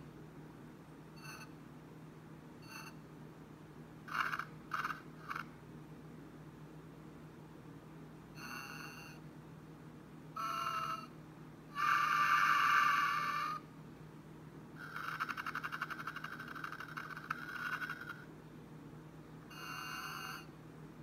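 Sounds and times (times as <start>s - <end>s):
faint low hum: 0.0s - 21.0s
electronic snoring and whistling: 1.2s - 1.5s, 2.6s - 3.0s, 8.4s - 9.2s, 10.4s - 11.1s, 11.8s - 13.6s, 14.8s - 18.2s, 19.5s - 20.5s.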